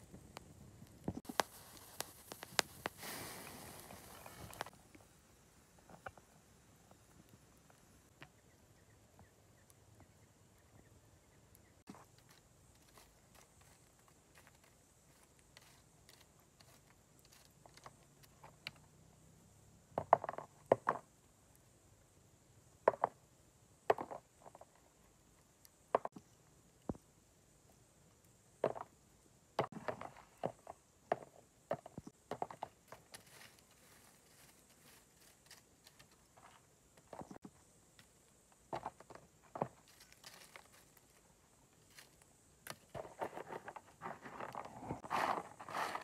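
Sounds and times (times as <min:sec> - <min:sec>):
stick clicking through embers: 0:00.8 - 0:04.7.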